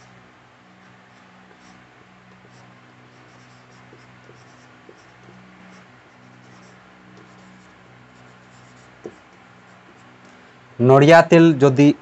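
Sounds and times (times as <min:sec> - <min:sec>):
steady low hum: 0:00.0 - 0:12.0
marker pen scratching on whiteboard: 0:01.1 - 0:10.2.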